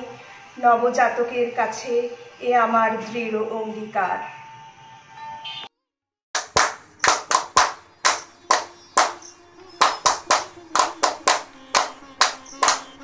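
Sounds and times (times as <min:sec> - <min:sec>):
rhythmic hand claps: 0:06.4 - 0:13.0.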